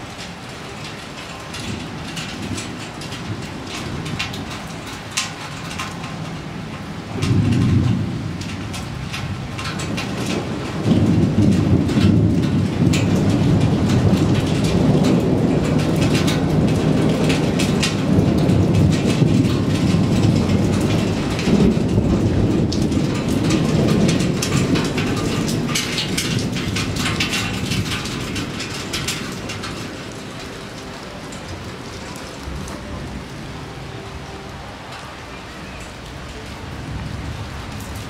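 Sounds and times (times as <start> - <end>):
steady rain: 0.0 - 38.0
thunder rumbling: 0.0 - 38.0.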